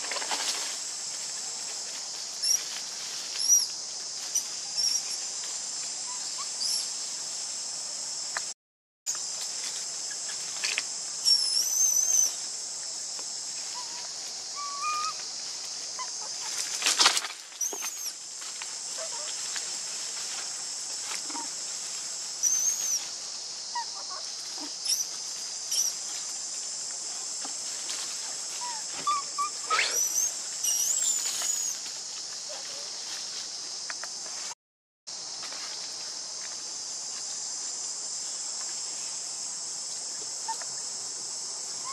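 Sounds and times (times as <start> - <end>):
high-pitched insect drone: 9.1 - 34.5.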